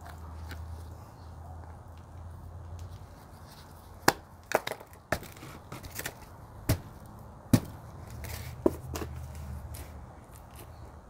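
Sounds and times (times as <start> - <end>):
stick jabbing soil: 4.0 - 10.7.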